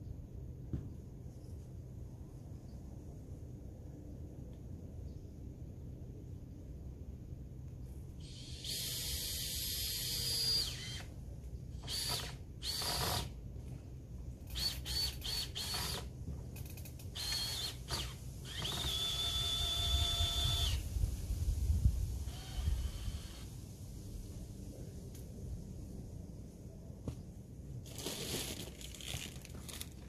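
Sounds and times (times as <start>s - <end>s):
power drill whining: 8.2s - 11.1s, 11.8s - 13.3s, 14.5s - 16.1s, 16.7s - 20.8s, 22.3s - 23.5s.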